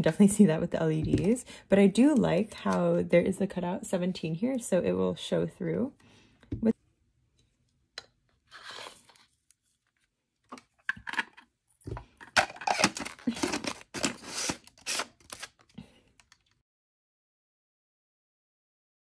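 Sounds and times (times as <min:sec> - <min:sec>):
plastic parts scraping and clicking: 0:09.9 - 0:16.6.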